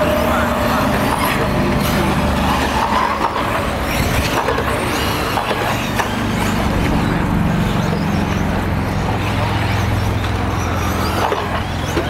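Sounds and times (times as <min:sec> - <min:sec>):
rc car motors whining: 0:00.0 - 0:12.0
low rumble: 0:06.6 - 0:09.4.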